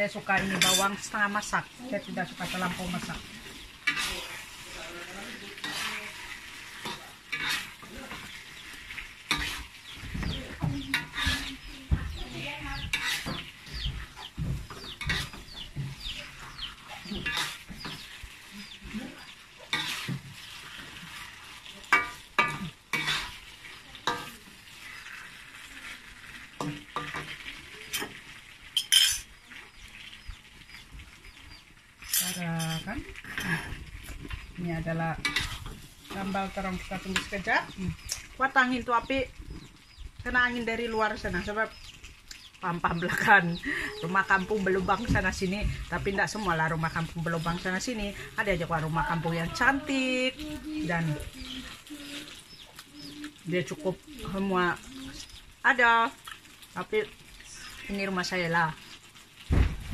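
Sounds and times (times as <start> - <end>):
metal spatula scraping wok: 0.0 - 29.5, 32.0 - 37.8
food sizzling in pan: 0.0 - 59.9.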